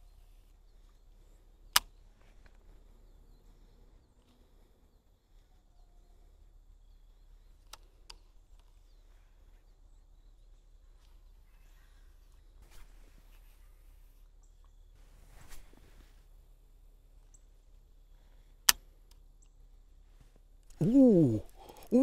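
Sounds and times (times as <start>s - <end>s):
faint high chirps: 0.0s - 7.7s.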